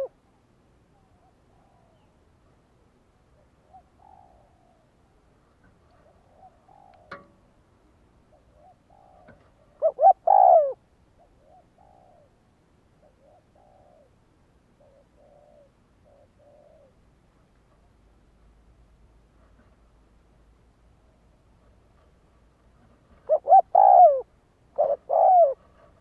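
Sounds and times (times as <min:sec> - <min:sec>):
dove cooing: 0:00.9 - 0:02.2, 0:03.4 - 0:07.3, 0:08.3 - 0:12.4, 0:13.0 - 0:17.0, 0:23.1 - 0:26.0.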